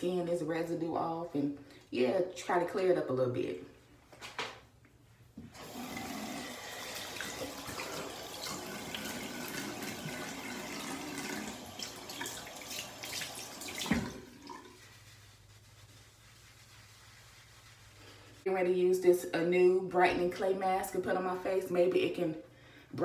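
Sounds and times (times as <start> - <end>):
tap water running and splashing: 5.5 - 14.8.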